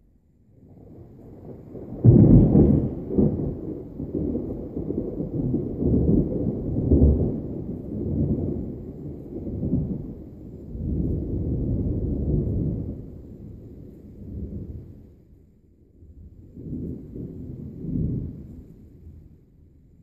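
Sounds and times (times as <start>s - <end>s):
rolling thunder rumble: 0.6s - 20.0s
thunder crack: 1.3s - 10.1s.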